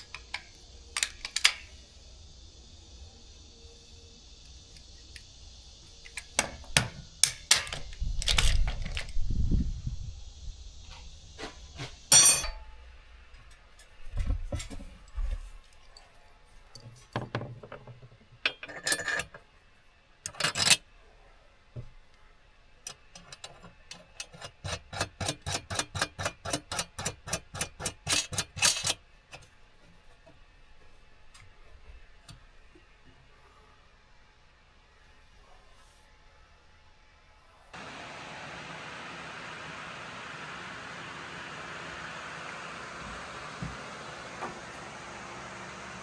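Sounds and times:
tool knocks and clatter: 17.1 - 19.2.

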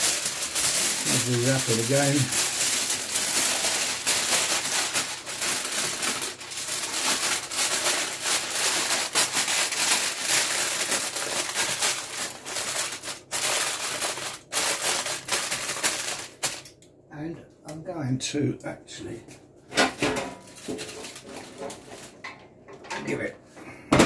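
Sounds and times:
aluminium foil crinkling: 0.0 - 16.8, 20.4 - 22.4.

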